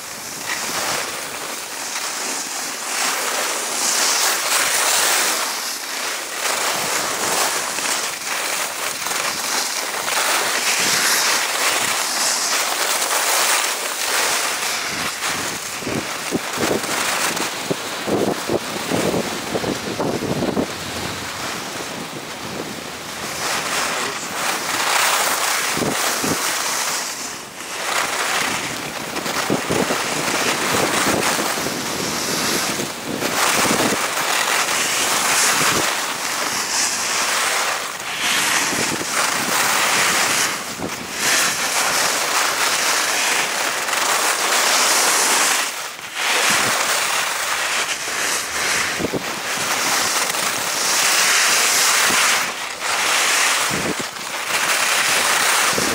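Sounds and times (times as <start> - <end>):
skis scraping over snow: 0.0 - 55.9
wind on microphone: 14.6 - 25.0, 28.3 - 42.3, 46.2 - 46.9, 47.9 - 52.6, 53.4 - 54.2, 55.1 - 55.9.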